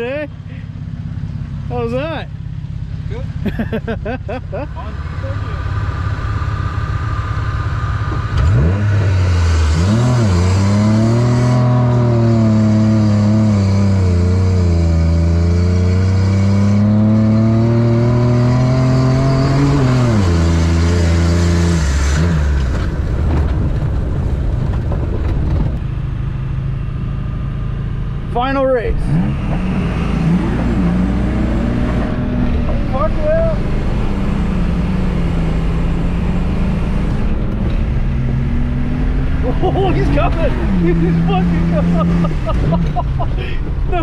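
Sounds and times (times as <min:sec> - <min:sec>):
car engine at full throttle: 0:00.0 - 0:44.0
wind and tyre rushing: 0:16.8 - 0:27.2, 0:29.0 - 0:44.0.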